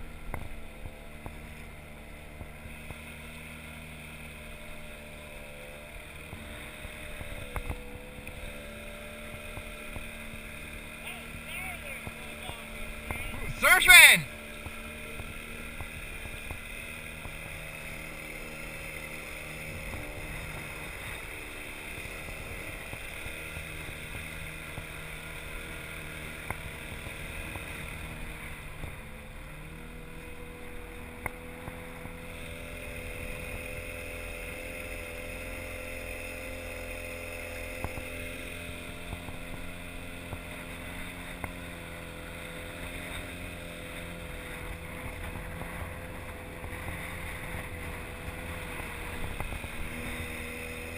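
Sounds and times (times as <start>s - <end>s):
outboard motor running: 0.0s - 50.9s.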